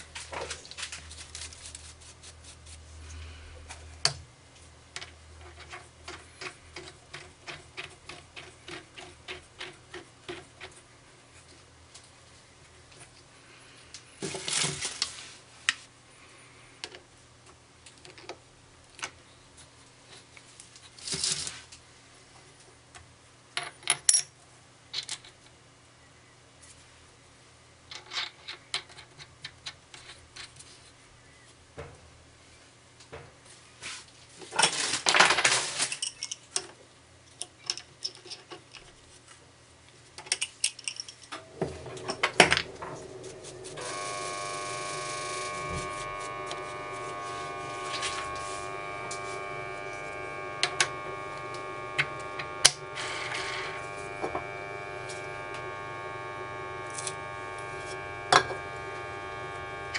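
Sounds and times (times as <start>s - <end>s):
small metal parts clicking: 40.2s - 41.4s.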